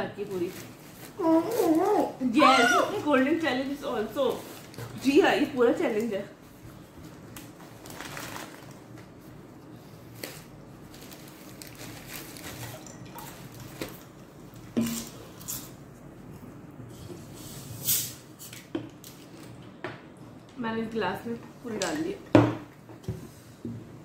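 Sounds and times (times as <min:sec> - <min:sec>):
paper wrappers rustling: 0:00.0 - 0:06.2, 0:07.0 - 0:09.4, 0:10.0 - 0:14.2.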